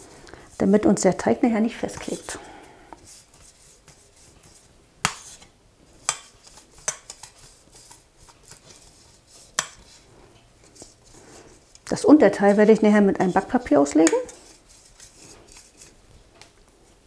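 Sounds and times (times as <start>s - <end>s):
soft rubbing: 3.0s - 5.5s, 6.4s - 16.1s.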